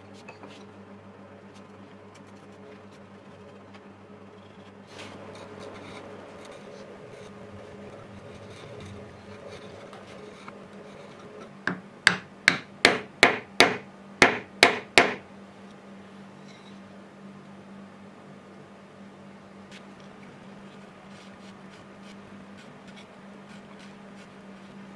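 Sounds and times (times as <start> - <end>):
chisel scraping wood: 4.4 - 7.4
sharp knocks on hammer handle: 11.7 - 15.2.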